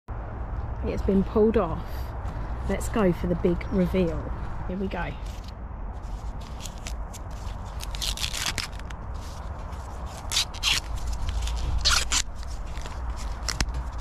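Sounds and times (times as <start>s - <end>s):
corn husk leaves ripping: 6.4s - 14.0s.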